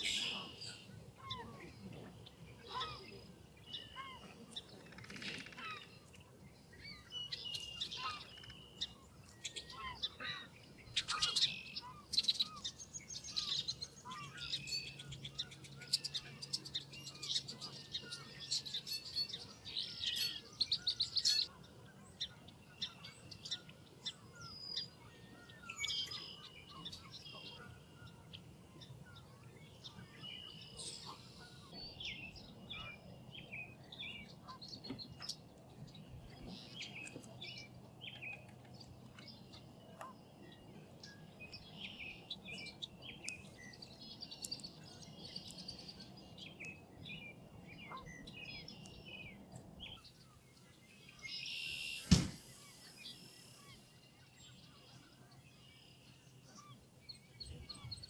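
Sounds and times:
birds chirping and trilling: 0:00.0 - 0:58.0.

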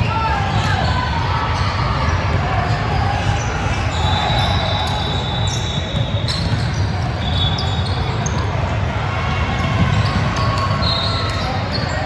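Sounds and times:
players and spectators voices: 0:00.0 - 0:12.0
basketball bouncing: 0:05.7 - 0:11.4.

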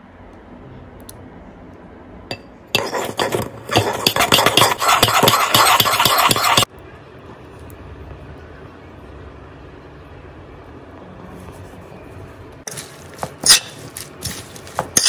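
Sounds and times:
fork scraping ceramic bowl: 0:02.8 - 0:06.7, 0:13.4 - 0:13.8.

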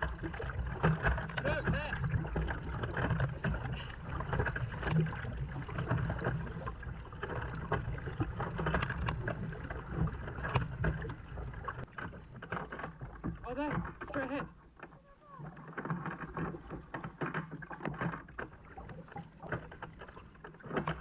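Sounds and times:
paddle blades splashing: 0:00.0 - 0:21.0
water rushing along hull: 0:00.0 - 0:21.0.

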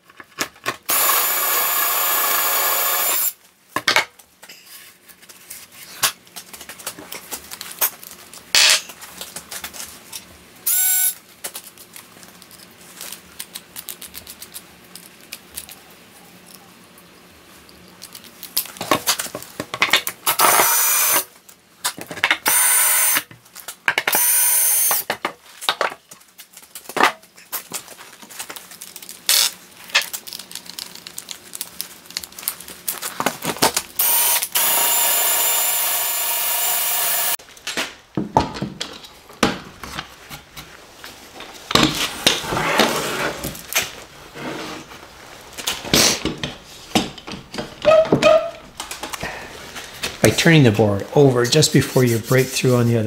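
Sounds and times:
power drill boring through wood: 0:00.9 - 0:03.4, 0:20.4 - 0:21.2, 0:22.5 - 0:23.2, 0:24.1 - 0:25.0, 0:34.0 - 0:37.4
knocks and scraping of wood: 0:37.7 - 0:45.0.

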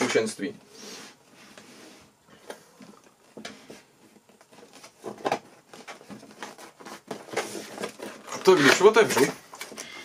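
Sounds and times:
cardboard rustling: 0:02.4 - 0:09.9.

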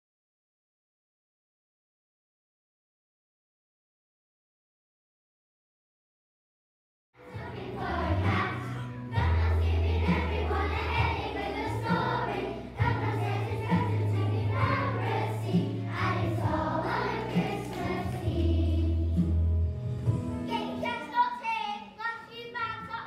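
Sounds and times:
children's choir singing: 0:07.2 - 0:19.4
instrumental accompaniment: 0:07.3 - 0:20.8.

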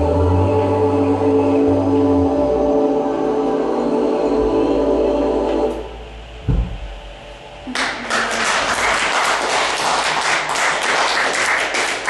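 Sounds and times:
sustained music tones: 0:00.0 - 0:07.7
low thump: 0:06.4 - 0:07.0
audience applauding: 0:07.7 - 0:12.0.

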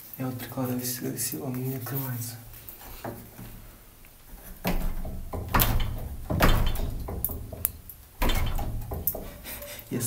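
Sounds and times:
window panes vibrating: 0:02.8 - 0:09.7
wooden door rattling and thudding: 0:03.0 - 0:09.6.

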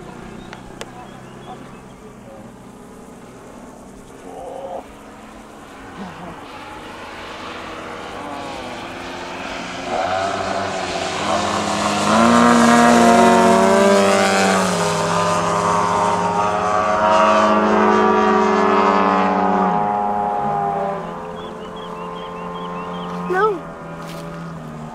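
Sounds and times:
model airplane propeller engines: 0:00.0 - 0:16.4.

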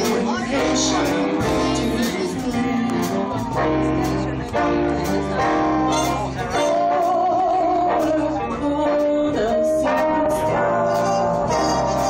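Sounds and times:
bass: 0:00.0 - 0:12.0
drums: 0:00.0 - 0:12.0
guitar: 0:00.0 - 0:12.0
woman singing with vibrato: 0:06.8 - 0:12.0.

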